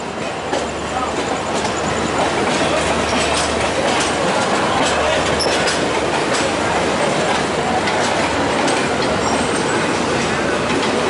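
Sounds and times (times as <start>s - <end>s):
train wheels rumbling on rails: 0.0s - 11.0s
clicks of rail joints: 2.4s - 11.0s.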